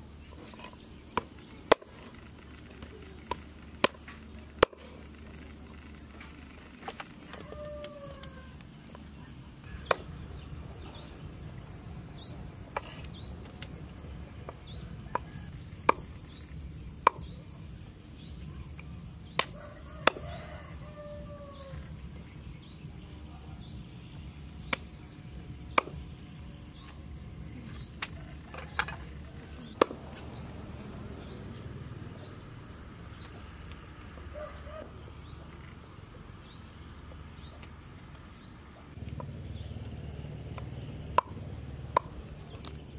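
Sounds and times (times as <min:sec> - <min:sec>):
cleaver chopping on wooden board: 0:01.2 - 0:01.9, 0:03.3 - 0:04.9, 0:09.8 - 0:10.1, 0:14.4 - 0:16.1, 0:17.0 - 0:17.4, 0:25.7 - 0:26.0, 0:29.6 - 0:30.4.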